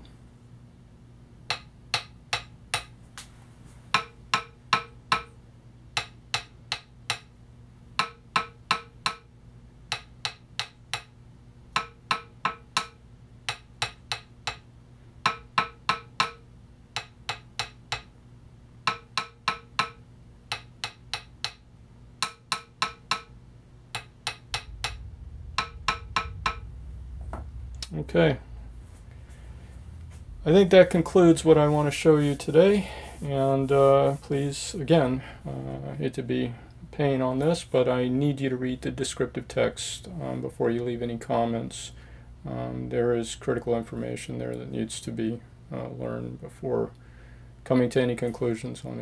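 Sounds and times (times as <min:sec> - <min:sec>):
stick tapping ringing metal platter: 0:01.5 - 0:02.9, 0:03.9 - 0:05.4, 0:06.0 - 0:07.3, 0:08.0 - 0:09.3, 0:09.9 - 0:18.2, 0:18.8 - 0:21.6, 0:22.2 - 0:26.8
stick tapping with dry knock: 0:01.5 - 0:03.0, 0:03.9 - 0:05.4, 0:06.0 - 0:07.3, 0:08.0 - 0:09.3, 0:09.9 - 0:11.1, 0:11.7 - 0:16.4, 0:17.0 - 0:18.1, 0:18.8 - 0:21.6, 0:22.2 - 0:23.3, 0:23.9 - 0:26.7.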